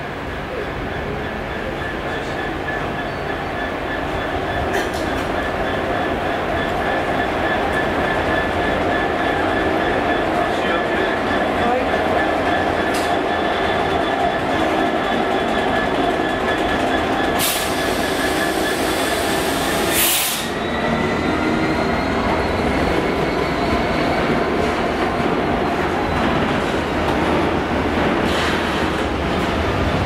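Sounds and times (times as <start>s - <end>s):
diesel locomotive engine: 0.0s - 30.0s
wheel squeal: 14.1s - 24.3s.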